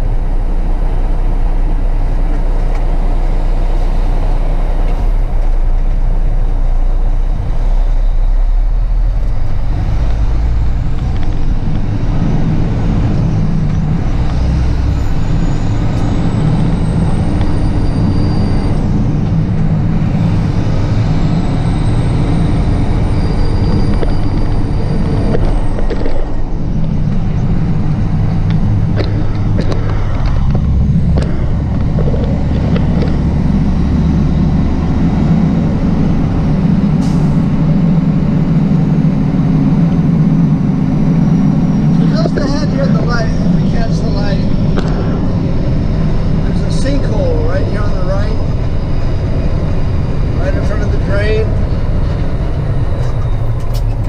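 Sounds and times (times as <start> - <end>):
truck diesel engine running: 0.0 - 54.0
thin high whistle: 17.4 - 18.9.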